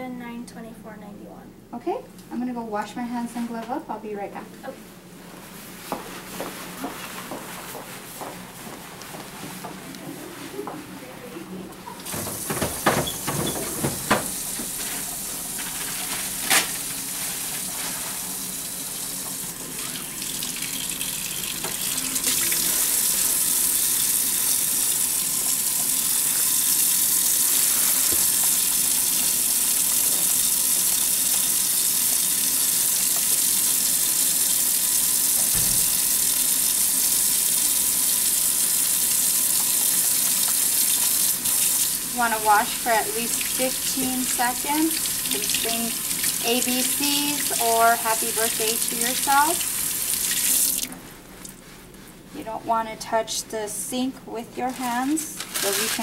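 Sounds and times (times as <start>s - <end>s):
tap water running into steel sink: 12.0s - 14.8s, 18.9s - 50.9s.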